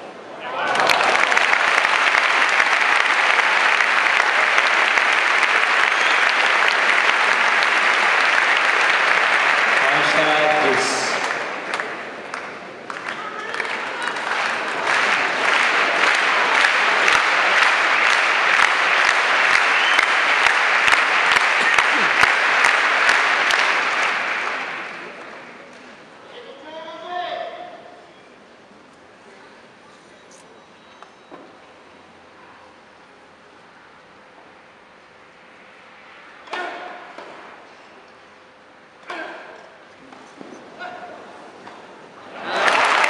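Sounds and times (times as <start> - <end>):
stadium crowd applauding: 0.4 - 27.4, 42.1 - 43.0
single sharp claps: 0.8 - 25.9.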